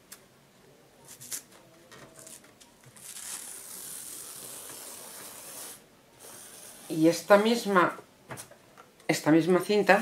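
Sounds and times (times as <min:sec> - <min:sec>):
tape peeling off fabric: 0:02.2 - 0:05.8.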